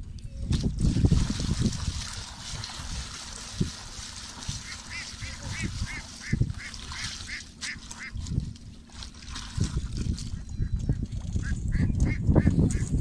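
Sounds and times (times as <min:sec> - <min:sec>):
water splashing and sloshing: 0:00.4 - 0:13.0.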